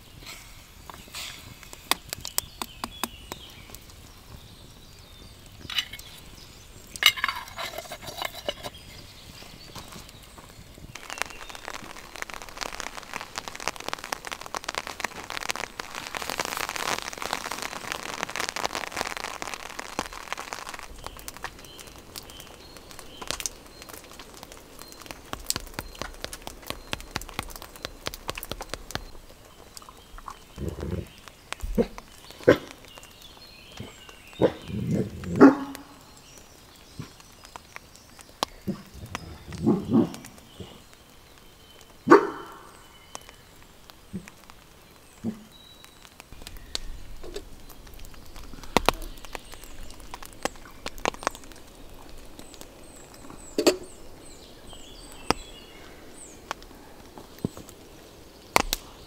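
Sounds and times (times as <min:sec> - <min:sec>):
crackling hiss of fine clicks: 0:00.0 - 0:59.0
large dog barking: 0:34.4 - 0:35.8, 0:42.1 - 0:42.6.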